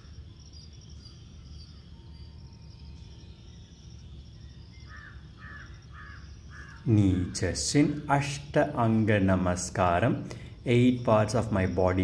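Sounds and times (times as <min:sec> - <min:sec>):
high insect hiss: 0:00.0 - 0:12.0
crow cawing: 0:04.9 - 0:06.8.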